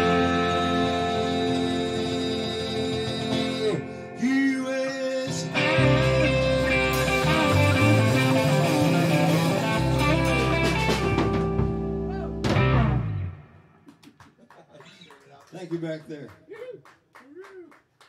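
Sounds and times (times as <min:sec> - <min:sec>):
low bass notes: 0:00.0 - 0:04.0, 0:05.3 - 0:13.8
drums: 0:00.0 - 0:04.6, 0:05.2 - 0:14.9
electric guitar: 0:00.0 - 0:14.0.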